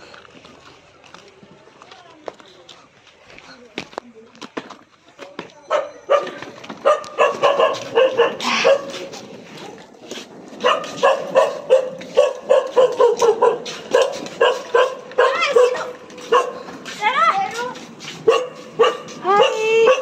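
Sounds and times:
dogs barking and yipping: 0:05.7 - 0:09.8, 0:10.5 - 0:20.0.

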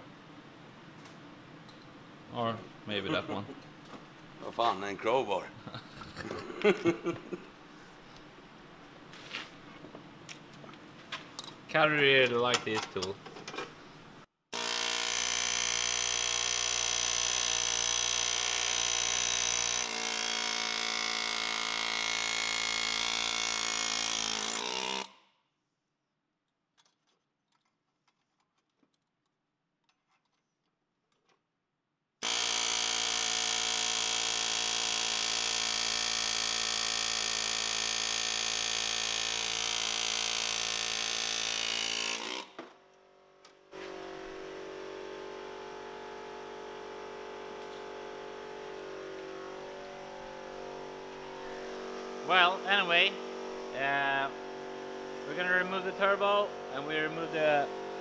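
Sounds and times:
cordless power tool running: 0:14.6 - 0:25.1, 0:32.2 - 0:42.6, 0:43.7 - 0:58.0.

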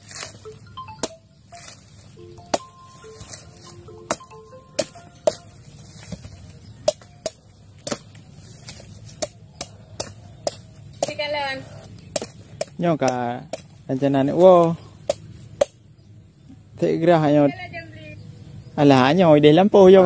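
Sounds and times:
machete chopping coconut husk: 0:00.0 - 0:15.8.

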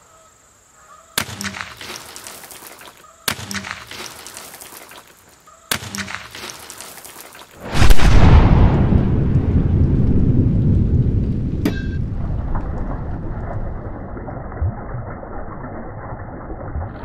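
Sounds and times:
loud deep rumble: 0:07.7 - 0:15.4.

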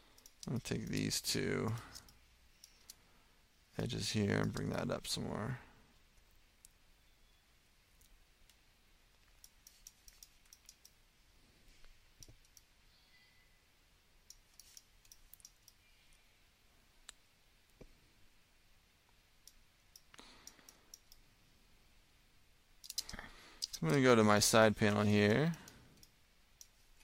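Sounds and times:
mouse and keyboard clicks: 0:09.2 - 0:11.0, 0:14.3 - 0:15.8, 0:22.8 - 0:24.0.

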